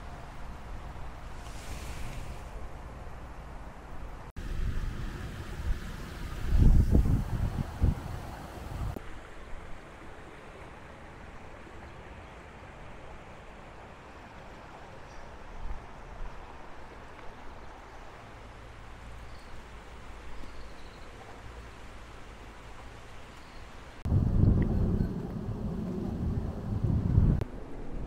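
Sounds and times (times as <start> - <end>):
wind rumbling on microphone: 0.8 - 9.0, 24.0 - 28.0
rocky stream rushing: 4.4 - 24.2.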